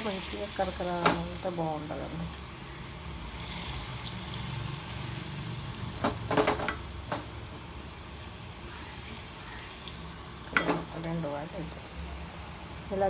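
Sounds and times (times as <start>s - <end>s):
fritters sizzling in hot oil: 0.0s - 12.3s.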